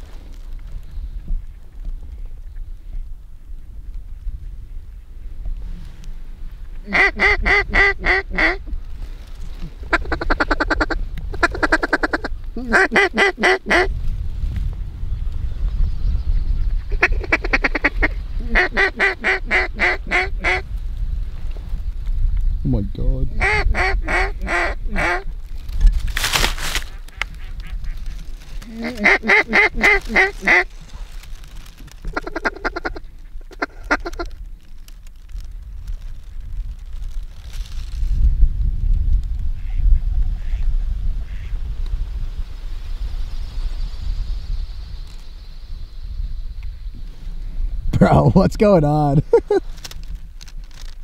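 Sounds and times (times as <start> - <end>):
low wind rumble: 0.0 - 51.0
duck call quacks: 6.8 - 8.6, 9.9 - 13.9, 17.0 - 20.6, 23.4 - 25.3, 28.6 - 30.7, 32.1 - 34.3
rapid duck call clucking: 6.9 - 8.6, 9.9 - 13.9, 17.0 - 20.6, 23.4 - 25.2, 28.7 - 30.6, 32.2 - 34.2.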